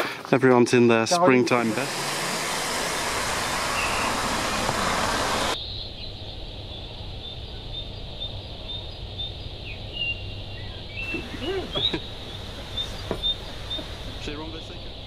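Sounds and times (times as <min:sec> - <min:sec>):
water rushing over weir: 0:01.3 - 0:05.6.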